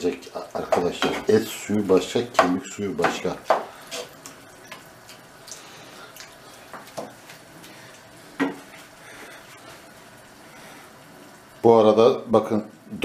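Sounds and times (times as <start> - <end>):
wooden spoon knocking on a pan: 0.7 - 1.4, 2.3 - 4.1.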